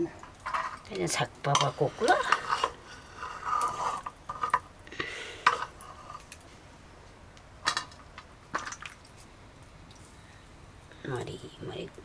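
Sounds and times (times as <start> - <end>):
metal utensils clinking on dishes: 1.5 - 3.7.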